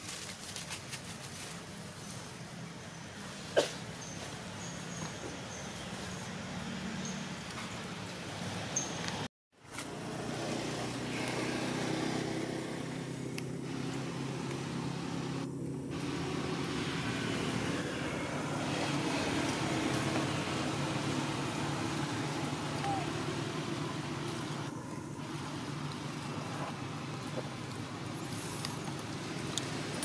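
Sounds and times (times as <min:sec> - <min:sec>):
engine running steadily: 0:07.4 - 0:30.0.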